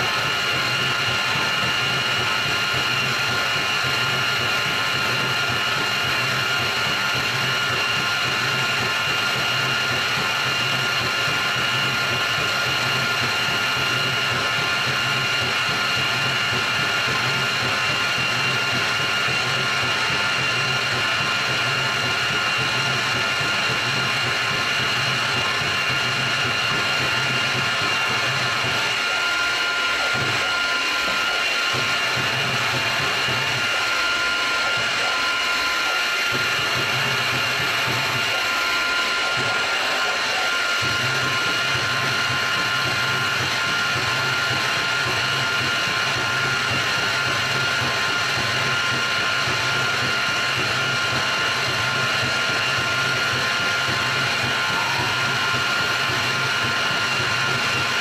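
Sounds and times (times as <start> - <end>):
milling machine whine: 0.0 - 58.0.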